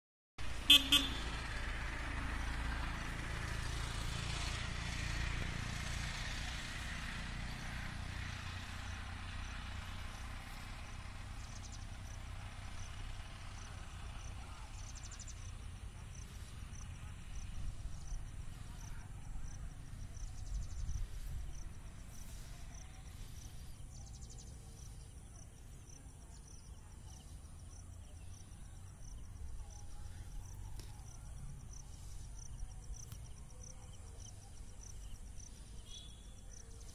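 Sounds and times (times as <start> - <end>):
distant road traffic: 0.4 - 36.9
insect chirping: 14.9 - 36.9.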